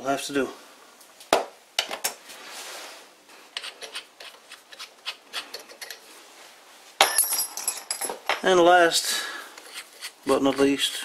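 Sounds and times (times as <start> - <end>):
light metallic clicks and scrapes: 3.5 - 6.1.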